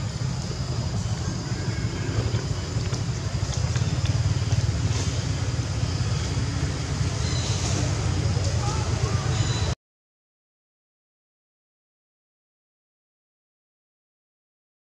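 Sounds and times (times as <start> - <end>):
motorbike engine idling: 0.0 - 9.8.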